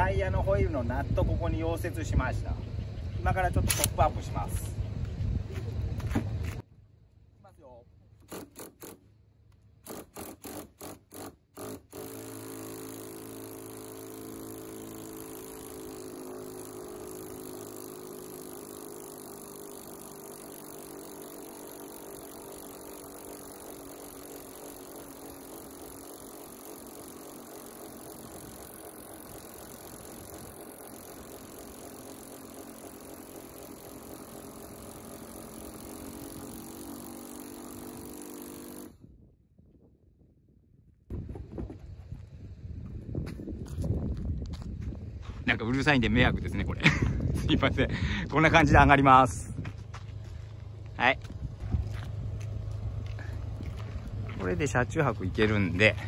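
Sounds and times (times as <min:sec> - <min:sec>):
power drill whirring: 0:08.2 - 0:09.1, 0:09.8 - 0:39.0.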